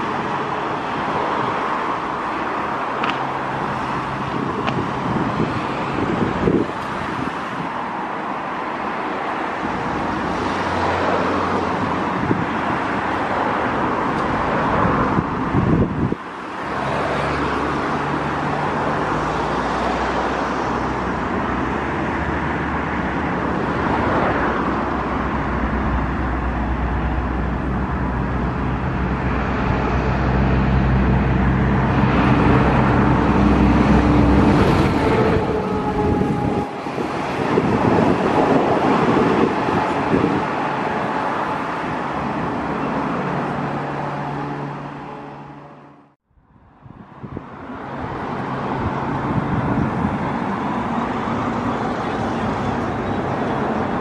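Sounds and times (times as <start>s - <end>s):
road traffic: 0.0s - 54.0s
jet engines rumbling: 23.2s - 45.8s.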